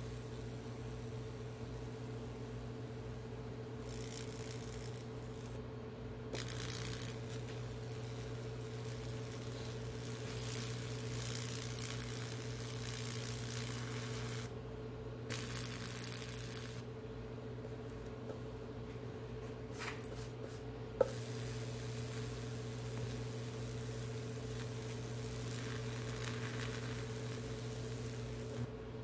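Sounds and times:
electricity arcing and crackling: 0:00.0 - 0:05.6, 0:06.4 - 0:14.6, 0:15.3 - 0:16.9, 0:21.1 - 0:28.8
steady electrical hum: 0:00.0 - 0:29.0.

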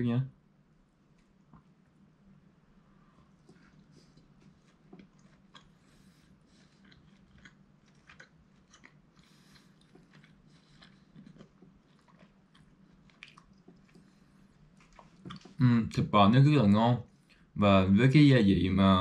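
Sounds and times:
low steady hum: 0:00.0 - 0:19.0
person chewing: 0:03.0 - 0:15.7.

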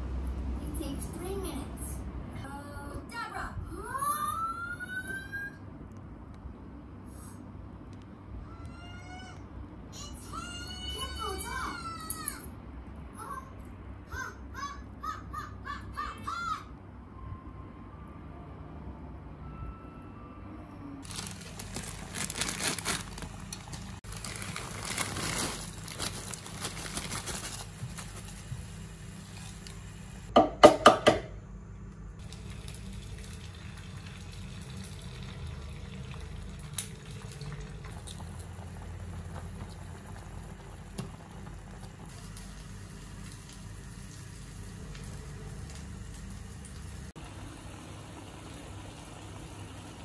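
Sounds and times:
water boiling in a pot: 0:32.2 - 0:50.0.

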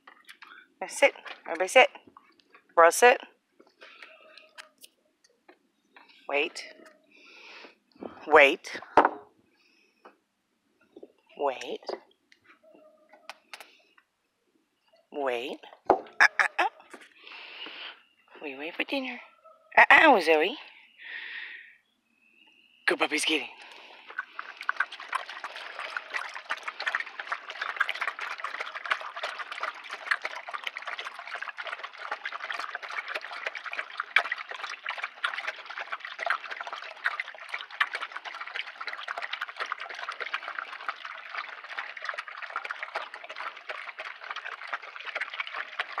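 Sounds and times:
dogs crunching kibble: 0:01.2 - 0:02.7, 0:23.6 - 0:46.0.

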